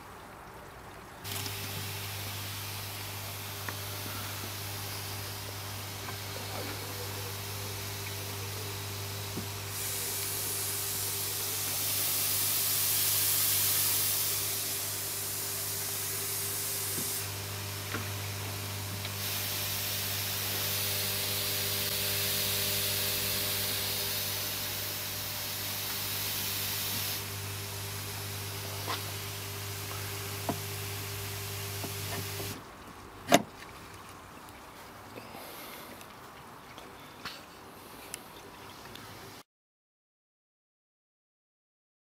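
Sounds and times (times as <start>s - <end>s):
air hissing through valves: 1.3s - 32.6s
air pump humming: 1.3s - 32.6s.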